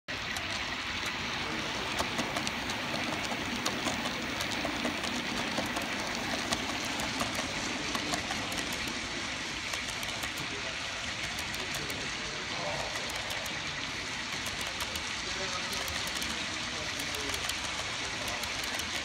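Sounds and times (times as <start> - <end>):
model train running: 0.1 - 19.0
wheels clicking on rails: 0.1 - 19.0.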